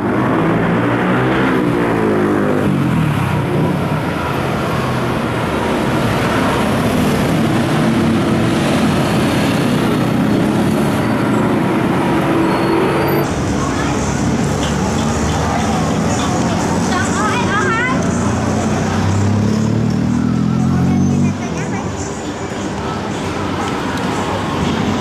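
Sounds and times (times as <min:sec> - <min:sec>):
motorbikes and cars passing: 0:00.0 - 0:25.0.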